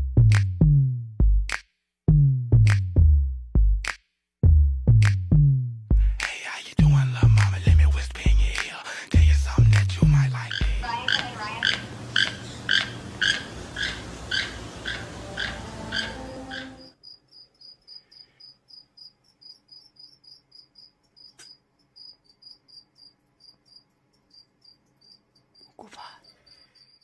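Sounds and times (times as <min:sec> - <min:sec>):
high insect chirping: 0:10.1 - 0:27.0
toucan croaking call: 0:10.2 - 0:17.0.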